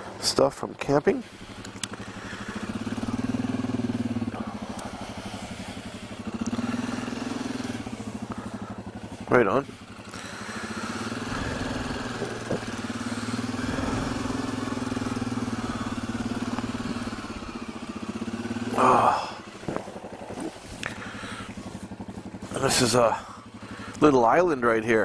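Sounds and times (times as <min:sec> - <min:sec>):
atv engine running: 0:00.0 - 0:25.0
person's voice: 0:22.6 - 0:23.3.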